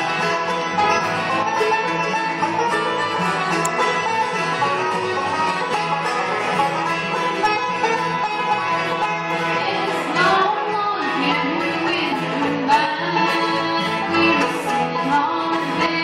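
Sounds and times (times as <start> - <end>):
banjo: 0.0 - 16.0
bluegrass band playing: 0.0 - 16.0
person singing: 9.3 - 16.0.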